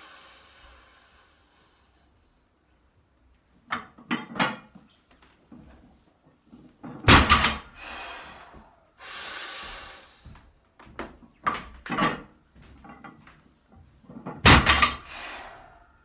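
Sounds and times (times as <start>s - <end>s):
hard hissing breathing: 0.0s - 2.5s, 7.6s - 10.6s, 14.8s - 16.0s
barbell plates thud and clatter: 6.8s - 7.8s, 14.2s - 15.1s.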